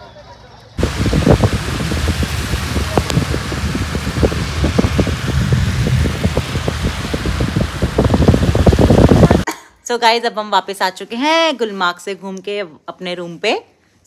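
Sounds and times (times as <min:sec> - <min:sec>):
road noise on wet road: 0:00.8 - 0:09.4
wind buffeting microphone: 0:00.8 - 0:09.5.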